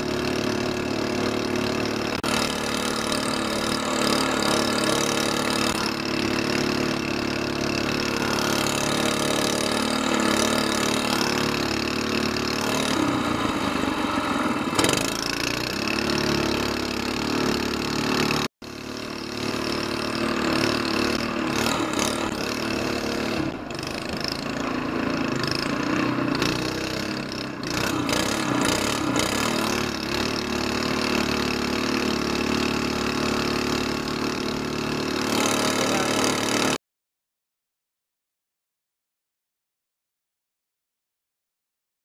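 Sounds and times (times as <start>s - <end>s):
small boat engine running: 0.0s - 36.8s.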